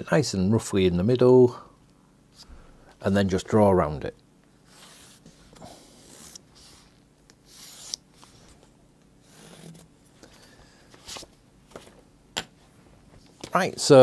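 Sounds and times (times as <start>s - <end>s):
pencil scratching: 4.7s - 8.3s, 9.2s - 9.9s.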